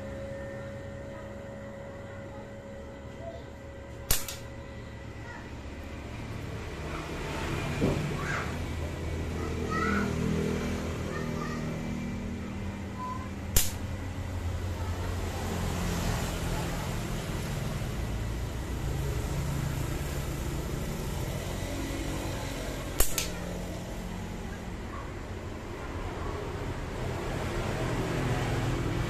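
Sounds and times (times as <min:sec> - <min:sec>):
low engine hum: 0:00.0 - 0:29.0
slingshot snaps: 0:04.1 - 0:04.5, 0:13.5 - 0:14.0, 0:23.0 - 0:23.5.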